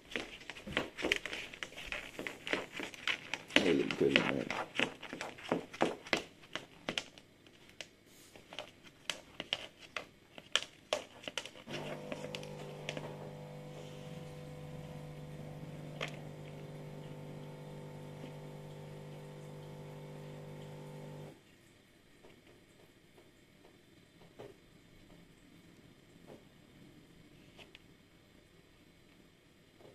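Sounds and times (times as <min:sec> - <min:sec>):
tortoise claws clicking on floor: 0:00.0 - 0:13.0.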